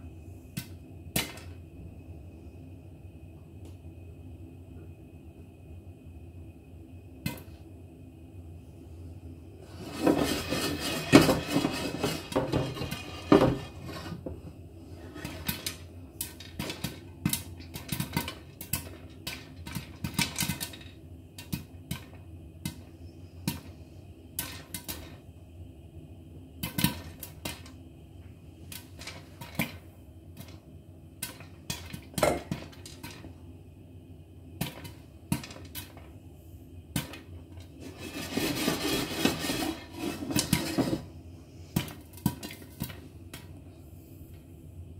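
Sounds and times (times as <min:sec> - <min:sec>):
popcorn popping: 0:00.5 - 0:01.6, 0:09.9 - 0:14.4, 0:15.0 - 0:23.7, 0:24.3 - 0:25.2, 0:26.6 - 0:27.9, 0:28.6 - 0:33.4, 0:34.5 - 0:36.2, 0:36.9 - 0:41.0, 0:41.8 - 0:43.5
kernels rattling in shaken pan: 0:09.8 - 0:14.0, 0:15.1 - 0:22.1, 0:31.2 - 0:33.3, 0:37.8 - 0:41.0.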